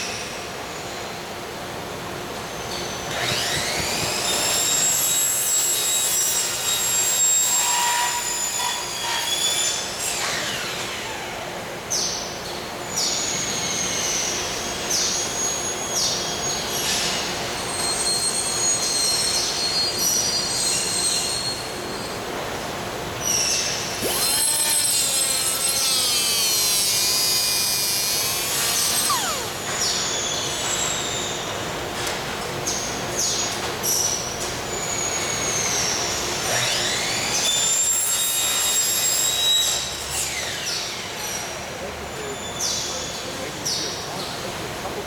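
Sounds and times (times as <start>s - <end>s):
high-pitched squeals and screeches: 3.1s - 10.8s, 24.0s - 31.4s
steady hum: 27.8s - 30.4s.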